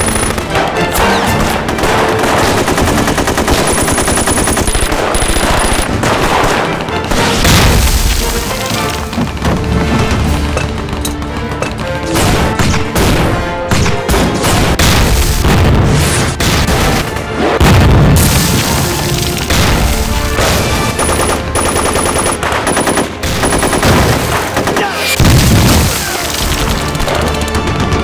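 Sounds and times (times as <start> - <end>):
machine-gun fire: 0.0 - 11.0, 14.0 - 28.0
dramatic film music: 0.0 - 28.0
gunfire: 0.0 - 28.0
explosions: 5.4 - 10.3, 14.1 - 21.0, 25.2 - 26.5.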